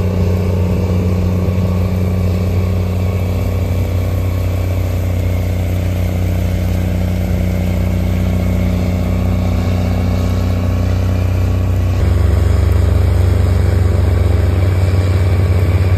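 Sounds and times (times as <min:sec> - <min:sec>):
tractor diesel engine drone: 0:00.0 - 0:15.9.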